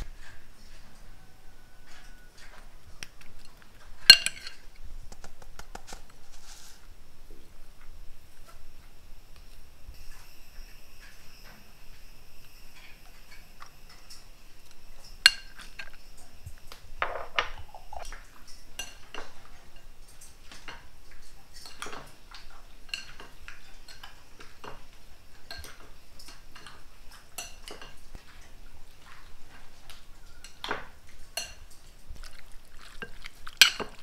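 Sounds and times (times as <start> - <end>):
chopsticks clinking ceramic bowl: 4.1 - 4.6, 31.4 - 31.8.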